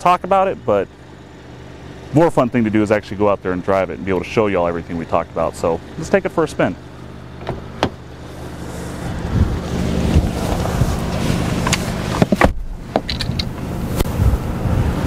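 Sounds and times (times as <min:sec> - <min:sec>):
car engine idling: 0:00.0 - 0:15.0
sharp clicks and knocks: 0:07.4 - 0:08.0, 0:11.6 - 0:13.6
wind rumbling on microphone: 0:09.0 - 0:15.0.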